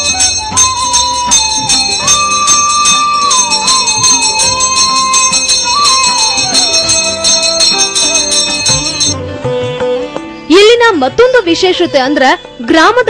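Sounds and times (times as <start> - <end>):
bells ringing fast: 0.0 - 9.2
gliding held melody: 0.0 - 9.2.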